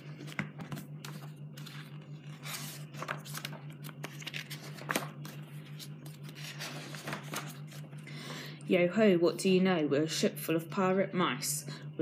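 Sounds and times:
book pages turning: 0:00.0 - 0:08.0
low hum: 0:00.0 - 0:12.0.

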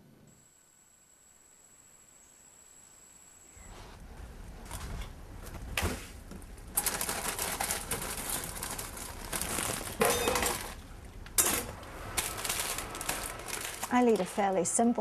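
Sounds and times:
plastic bag crinkling: 0:06.7 - 0:14.8
vegetables rattling into pot: 0:06.8 - 0:10.8, 0:11.4 - 0:14.8.

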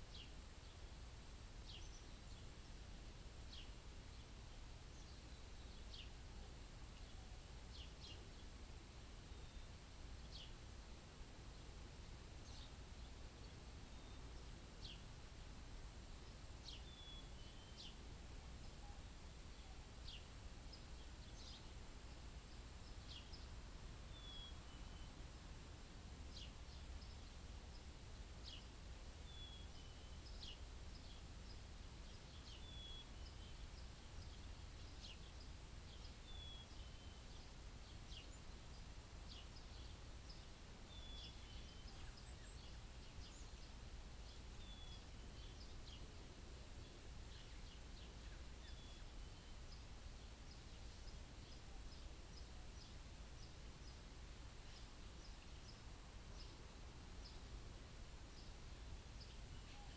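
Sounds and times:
birds chirping: 0:16.1 - 0:25.4, 0:26.2 - 0:57.6, 0:58.3 - 0:59.9.

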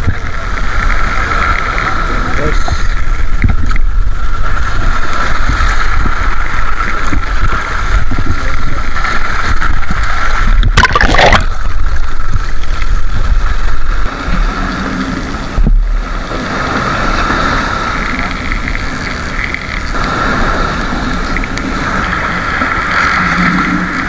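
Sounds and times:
water sloshing over rocks: 0:04.5 - 0:24.0.

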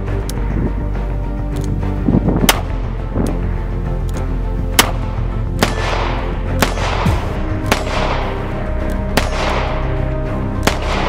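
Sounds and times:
background music: 0:00.0 - 0:11.0
revolver gunshots: 0:04.7 - 0:08.5, 0:09.1 - 0:11.0.

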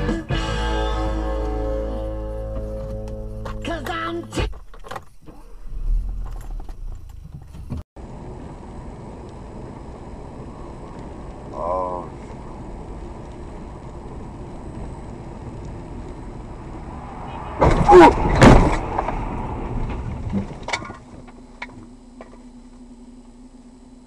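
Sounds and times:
car road and engine noise: 0:00.0 - 0:24.0
crunching and clattering: 0:02.6 - 0:07.9
steady low hum: 0:04.9 - 0:24.0
loud crash bangs: 0:17.2 - 0:20.6.

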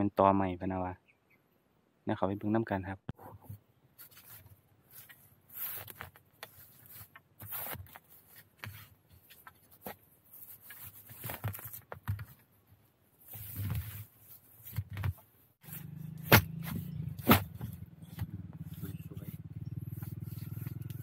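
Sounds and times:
rustling in dry leaf litter: 0:04.0 - 0:08.6
machete chopping bamboo: 0:15.8 - 0:18.3.

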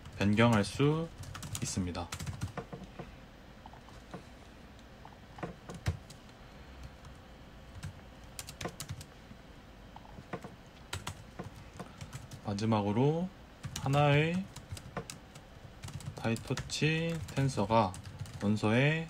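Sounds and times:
computer keyboard typing: 0:00.0 - 0:03.1, 0:05.4 - 0:09.1, 0:10.1 - 0:12.4, 0:13.6 - 0:18.6.

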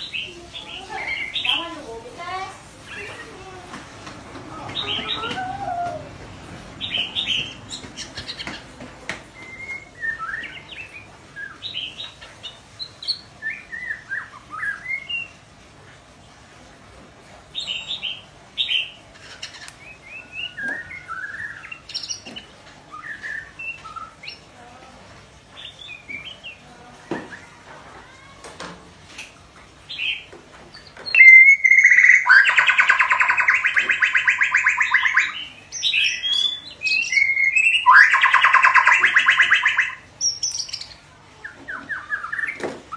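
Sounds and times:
bird whistling and chirping: 0:09.4 - 0:11.9, 0:13.1 - 0:15.3, 0:22.9 - 0:24.2, 0:31.0 - 0:40.9, 0:41.7 - 0:42.6.

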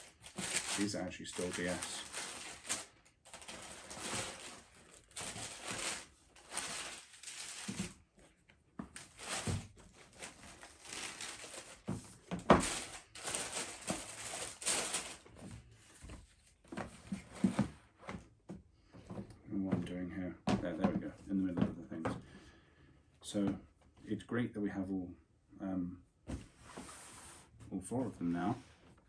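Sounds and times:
tissue paper rustling: 0:00.0 - 0:08.1, 0:08.9 - 0:16.6.

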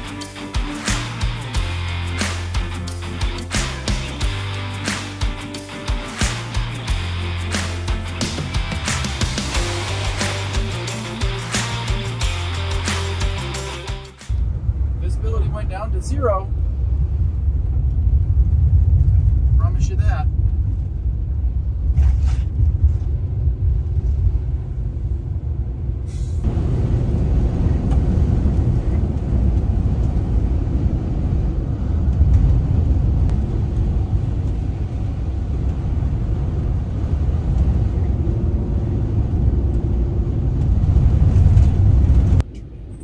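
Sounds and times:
road and wind noise in cab: 0:14.3 - 0:43.0.

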